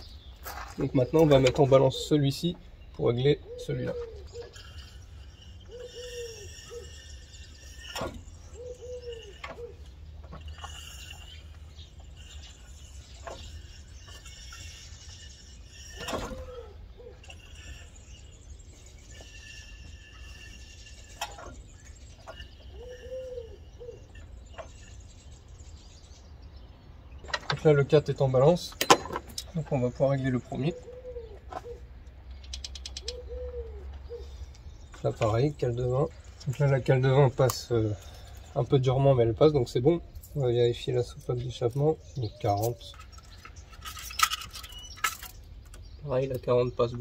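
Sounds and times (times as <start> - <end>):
small birds chirping: 0.0 - 47.0
pigeons cooing: 0.8 - 26.4, 29.5 - 47.0
sharp clicks and knocks: 27.2 - 27.7, 28.7 - 29.6, 32.3 - 33.2.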